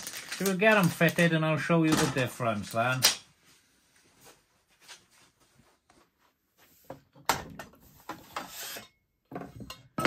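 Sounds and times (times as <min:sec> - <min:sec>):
metal knocks and scrapes: 0:06.8 - 0:10.0.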